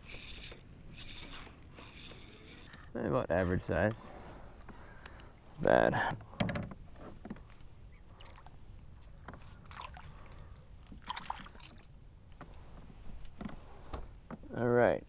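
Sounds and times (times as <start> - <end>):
water sloshing: 8.1 - 12.0
short water splashes: 9.4 - 10.4, 11.0 - 11.9.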